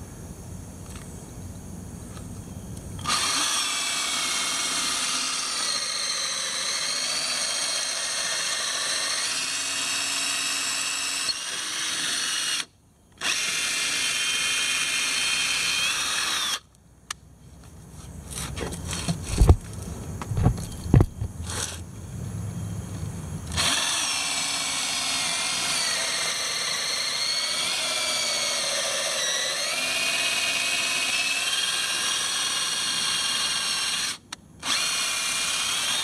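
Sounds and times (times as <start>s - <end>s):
cordless drill boring through wood: 3.0s - 16.7s, 21.4s - 21.8s, 23.5s - 36.0s.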